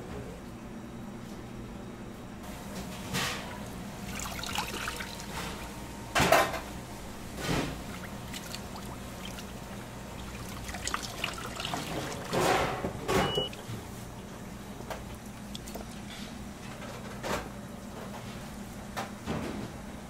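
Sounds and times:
steady low hum: 0:00.0 - 0:20.0
liquid pouring and splashing: 0:04.0 - 0:05.8, 0:07.4 - 0:16.2.

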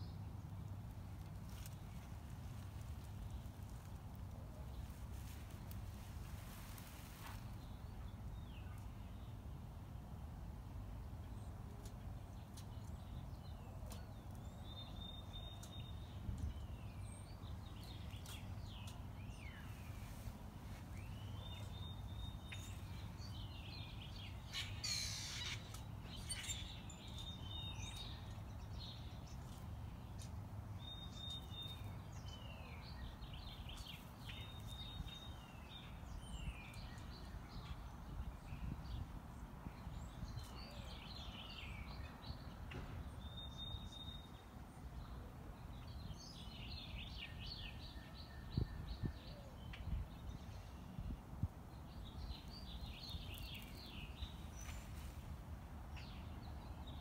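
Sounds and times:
songbirds chirping: 0:00.0 - 0:57.0
rustling: 0:01.0 - 0:07.6.

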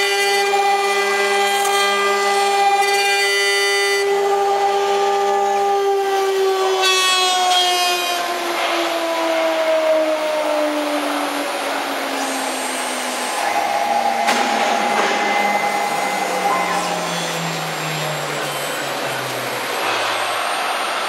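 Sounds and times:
router spindle motor whining: 0:11.3 - 0:19.9
cutter hissing through wood: 0:11.9 - 0:14.0.

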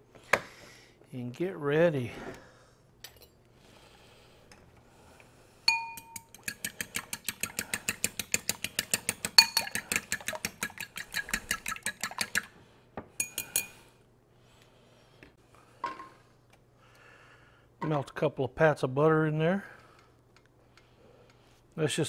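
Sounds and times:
fork clinking against bowl: 0:05.7 - 0:11.6, 0:13.2 - 0:13.8
fork beating eggs in bowl: 0:05.7 - 0:12.6.

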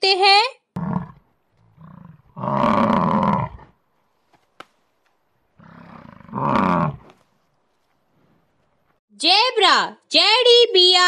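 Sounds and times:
yak bellowing: 0:05.6 - 0:07.2.

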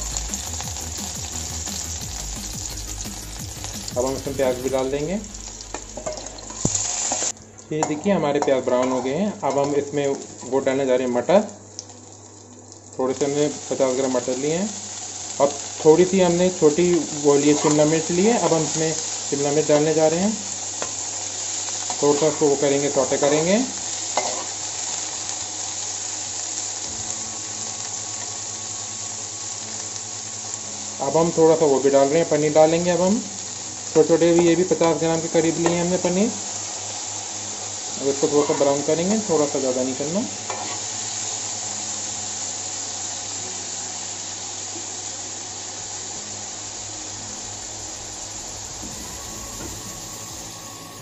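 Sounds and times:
vegetables sizzling in oil: 0:00.0 - 0:51.0
low hum: 0:01.3 - 0:07.6, 0:46.1 - 0:51.0.

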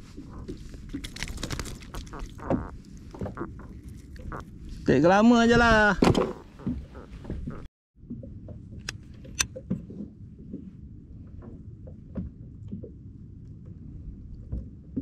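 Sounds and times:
wind and water rumble: 0:00.0 - 0:15.0
fishing gear clicks and knocks: 0:00.6 - 0:04.4.

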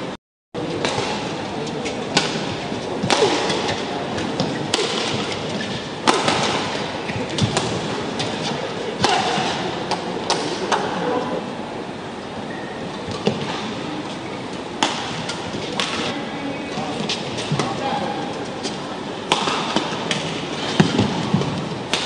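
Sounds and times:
rackets striking shuttlecock: 0:00.7 - 0:11.0, 0:14.8 - 0:22.0.

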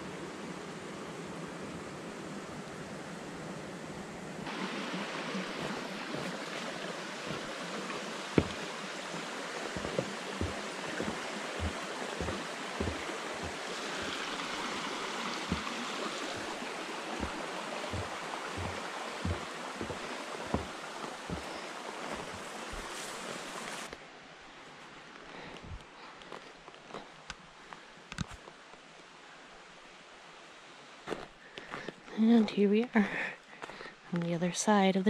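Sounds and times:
water rushing: 0:00.0 - 0:23.9
dull footsteps: 0:04.6 - 0:23.9.

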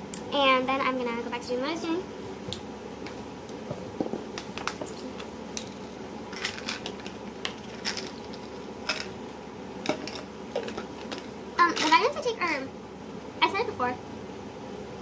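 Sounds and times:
low background hum: 0:00.0 - 0:15.0
small objects clicking and tapping: 0:04.0 - 0:09.2, 0:09.8 - 0:12.0.

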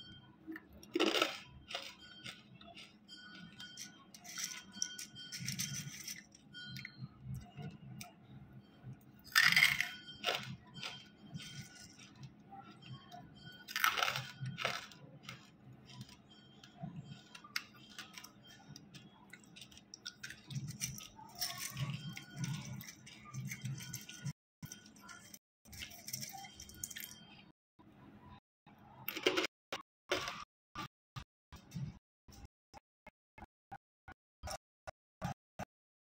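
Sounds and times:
hard food crunching: 0:00.6 - 0:06.1, 0:09.3 - 0:27.2.

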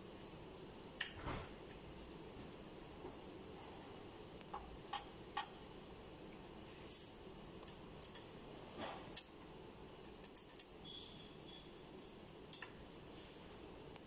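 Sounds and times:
high metallic squeak: 0:06.9 - 0:07.3
metallic clicks and taps: 0:12.3 - 0:12.8.

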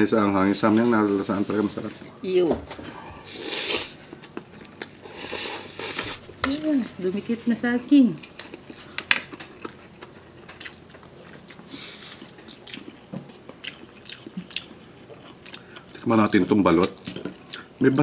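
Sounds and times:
person chewing noodles: 0:03.2 - 0:06.4, 0:08.2 - 0:16.0, 0:16.8 - 0:17.8.

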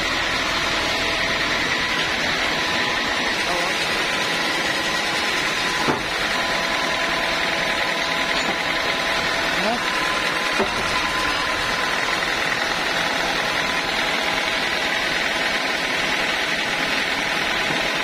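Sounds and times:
sawmill machine drone: 0:00.0 - 0:18.0.

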